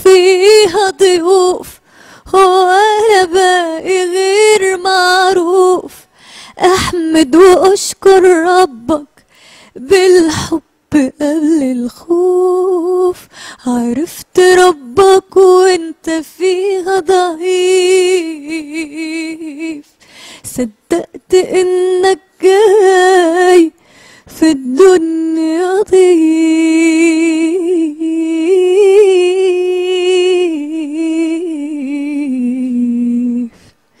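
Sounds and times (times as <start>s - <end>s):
short breaths: 1.8s - 2.3s, 6.0s - 6.6s, 9.2s - 9.8s, 13.2s - 13.6s, 20.0s - 20.5s, 23.8s - 24.3s
solo voice singing: 24.4s - 33.6s.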